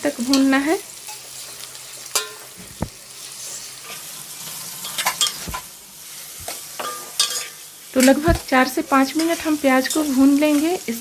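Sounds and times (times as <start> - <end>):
onions sizzling in oil: 0.0 - 11.0
metal spatula scraping pan: 3.2 - 8.5.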